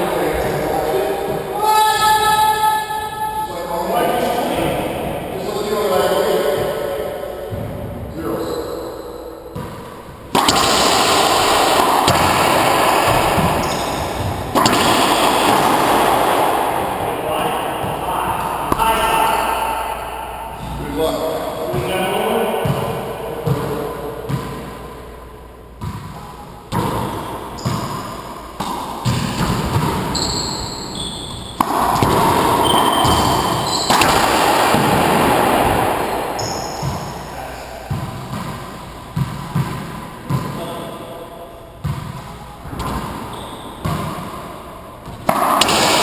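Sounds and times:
sneakers squeaking: 0.2s - 17.0s, 25.8s - 46.0s
ball bouncing on hardwood floor: 9.5s - 16.1s, 31.0s - 37.1s
racquetball smacks echoing: 9.5s - 20.8s, 25.8s - 41.0s, 41.8s - 46.0s.

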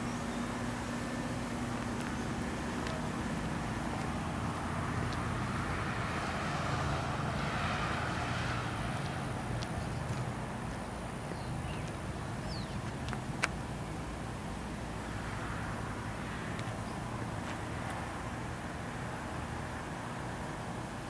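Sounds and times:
vehicle passing by: 0.0s - 13.1s
road traffic hum: 0.0s - 21.0s.

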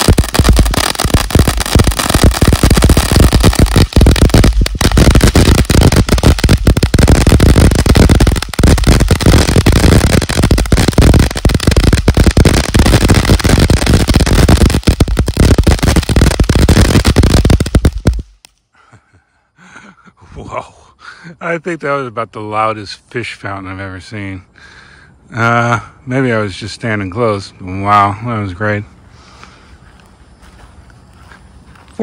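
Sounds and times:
firework crackling: 0.0s - 18.6s.

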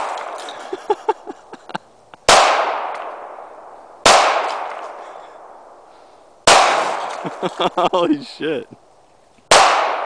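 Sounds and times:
pistol shots echoing: 0.0s - 0.6s, 2.3s - 5.6s, 6.4s - 7.2s, 9.5s - 10.0s.

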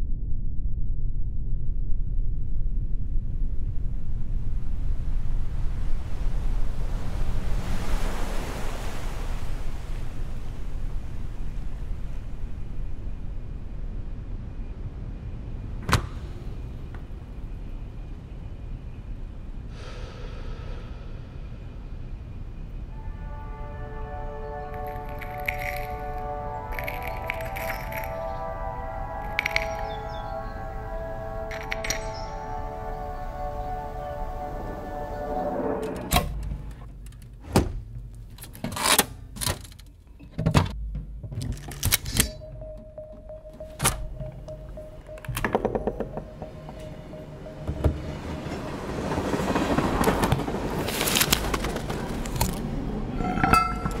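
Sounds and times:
steady low rumble: 0.0s - 7.8s, 9.3s - 37.1s, 42.3s - 50.8s
steady tone: 19.8s - 36.3s, 42.2s - 49.6s, 53.0s - 54.0s
ringing chime tone: 24.6s - 35.5s, 42.2s - 49.2s, 53.2s - 54.0s
sharp clicks and knocks: 40.3s - 47.0s.

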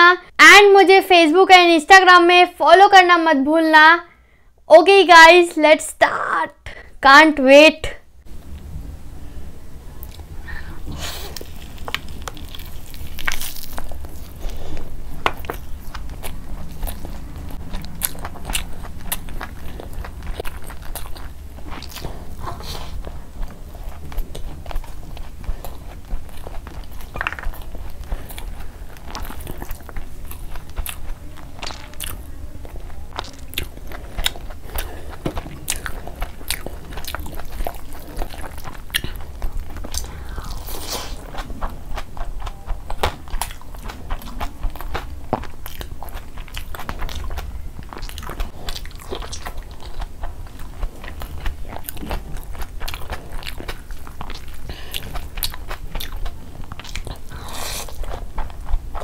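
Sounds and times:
person chewing and smacking: 10.0s - 59.0s.

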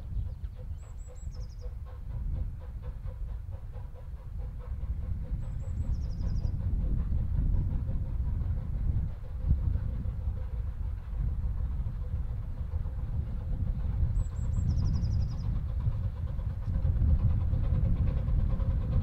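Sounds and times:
small bird singing: 0.0s - 1.7s, 5.6s - 6.6s
distant steam locomotive exhaust: 0.0s - 19.0s.

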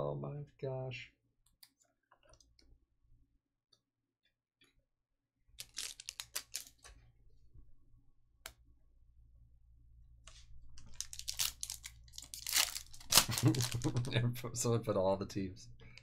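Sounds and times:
foil pack tearing open: 5.6s - 6.8s, 10.9s - 14.0s
wrapper crinkling: 5.6s - 6.9s, 10.8s - 14.1s
cards clicking and rustling: 5.6s - 7.0s, 10.3s - 14.1s.

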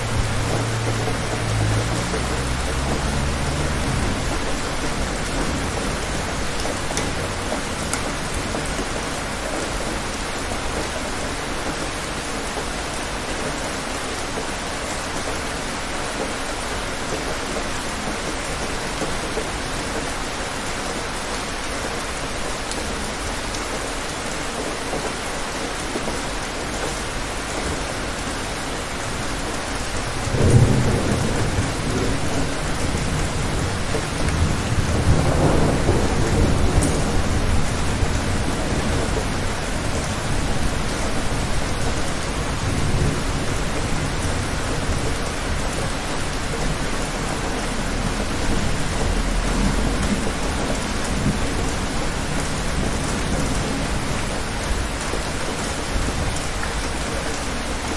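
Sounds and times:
thunder rumbling: 0.0s - 9.1s, 30.2s - 56.4s
steady rain falling: 0.0s - 57.9s.

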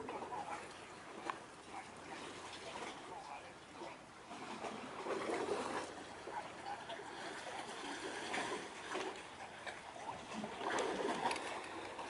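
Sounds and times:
water lapping and splashing: 0.0s - 12.0s.

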